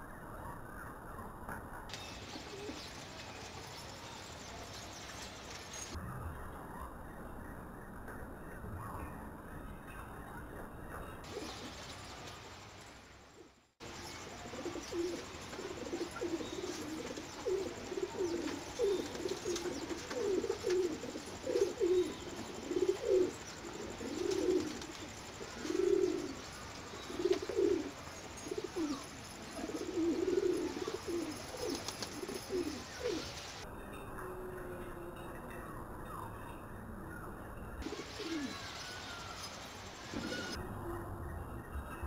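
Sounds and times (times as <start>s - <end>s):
pigeons cooing: 0.0s - 3.2s, 11.2s - 11.9s, 13.8s - 41.2s
sparrows chirping: 0.0s - 6.0s, 6.9s - 13.0s, 13.8s - 40.6s.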